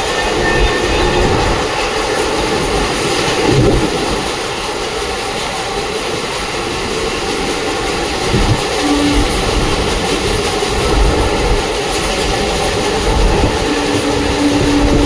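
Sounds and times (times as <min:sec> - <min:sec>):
wheel-on-rail rumble: 0:00.0 - 0:15.0
rush of air: 0:08.1 - 0:11.6.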